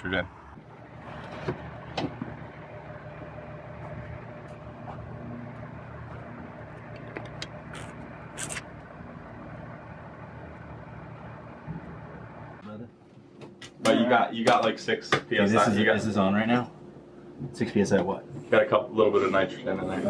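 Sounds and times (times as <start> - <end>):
low motor hum: 0.3 - 12.6.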